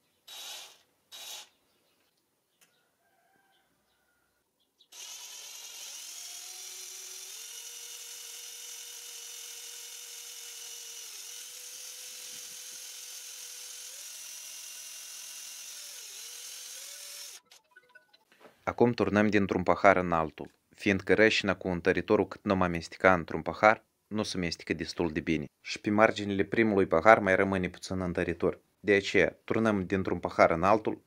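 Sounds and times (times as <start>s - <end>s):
electric drill mixing resin: 0.3s - 1.5s, 4.9s - 17.4s.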